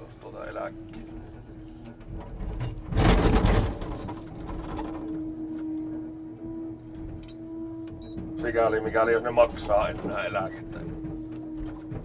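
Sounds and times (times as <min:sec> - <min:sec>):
truck engine running: 0:00.0 - 0:12.0.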